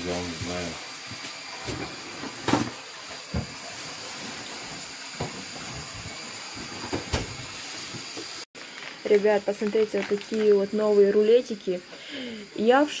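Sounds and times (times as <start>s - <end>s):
background hiss: 0.0s - 13.0s
plastic bags rustling: 8.6s - 11.4s.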